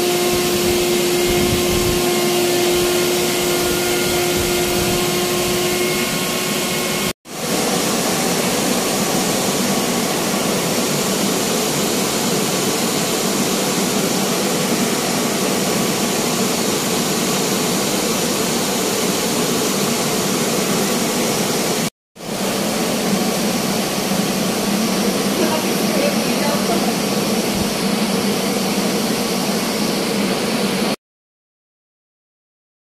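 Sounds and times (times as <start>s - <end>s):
blower rushing air: 0.0s - 31.0s.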